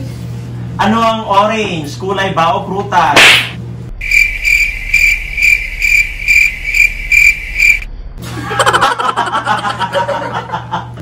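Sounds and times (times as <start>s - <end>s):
cricket chirping sound effect: 4.0s - 7.9s.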